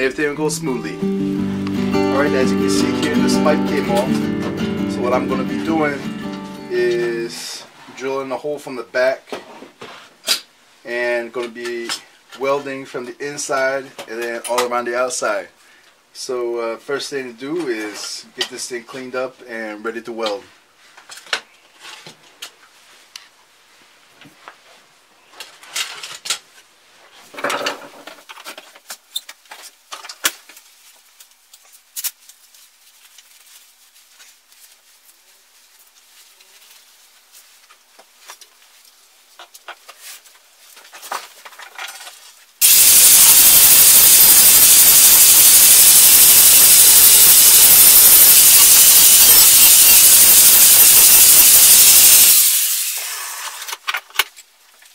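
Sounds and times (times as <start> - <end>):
angle grinder grinding steel: 42.6 - 53.6.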